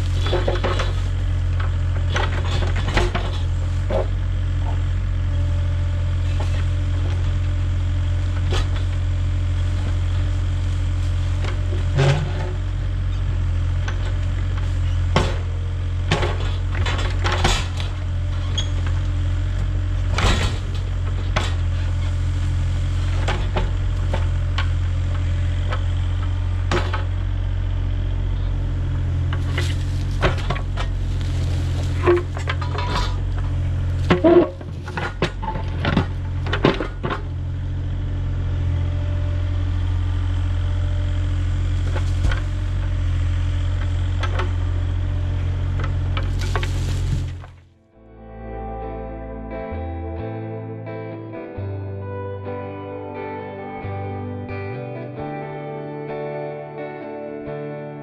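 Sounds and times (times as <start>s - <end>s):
excavator diesel engine running: 0.0s - 47.7s
metallic clanks of excavator bucket: 29.3s - 37.3s.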